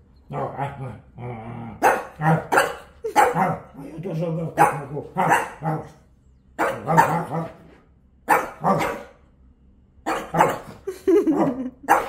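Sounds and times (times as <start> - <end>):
puppy yapping: 4.6 - 6.0, 6.6 - 7.6, 8.3 - 9.2.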